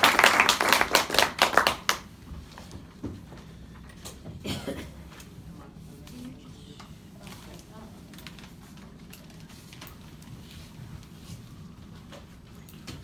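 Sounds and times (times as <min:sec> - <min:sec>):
people clapping: 0:00.0 - 0:02.1.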